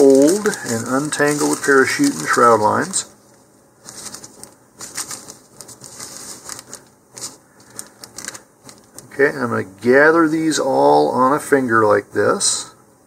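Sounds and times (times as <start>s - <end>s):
plastic sheet crinkling: 0.0s - 9.2s.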